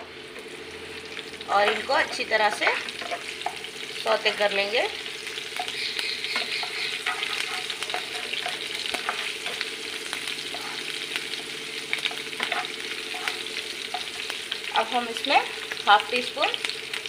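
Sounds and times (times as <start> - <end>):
chillies sizzling in hot oil: 0.0 - 17.0
spatula scraping and tapping pan: 1.6 - 3.7, 5.4 - 11.3, 11.9 - 14.4.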